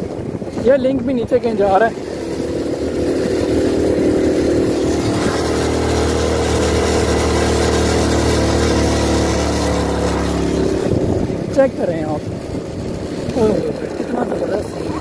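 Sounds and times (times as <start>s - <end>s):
wind rushing over microphone: 0.0s - 7.3s, 9.8s - 15.0s
motorcycle engine running: 0.0s - 15.0s.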